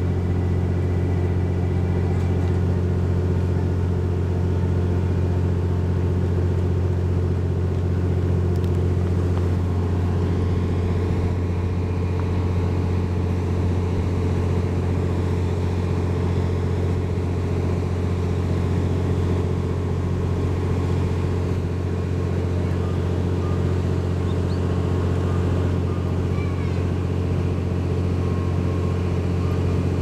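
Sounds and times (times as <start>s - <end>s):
diesel train engine idling hum: 0.0s - 30.0s.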